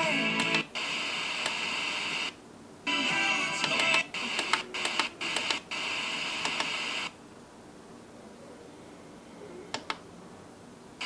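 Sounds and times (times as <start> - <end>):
fm radio station audio: 0.0 - 7.1
low background hiss: 0.0 - 11.0.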